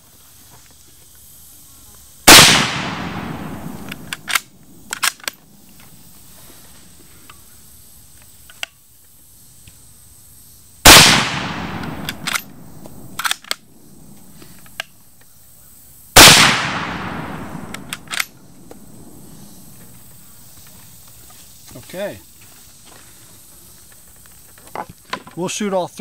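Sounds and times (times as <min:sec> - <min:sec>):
rifle bolt clicks: 0:02.3 - 0:05.4, 0:10.9 - 0:13.6, 0:16.2 - 0:18.3
rifle shots with long echo: 0:02.3 - 0:05.4, 0:10.8 - 0:14.2, 0:16.2 - 0:19.5.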